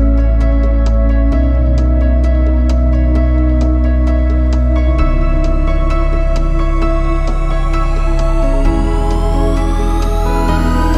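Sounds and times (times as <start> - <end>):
light ticking beat: 0.0 - 10.9
synth chords over deep bass: 0.0 - 10.9.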